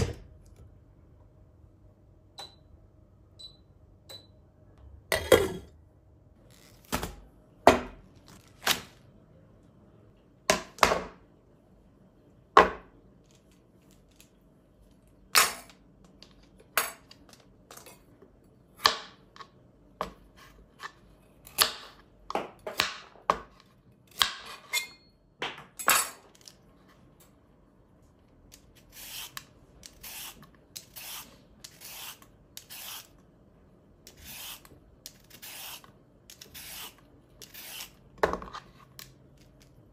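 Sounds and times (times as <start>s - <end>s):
vegetable peeler rasping carrot: 28.9s - 33.1s, 34.1s - 38.0s.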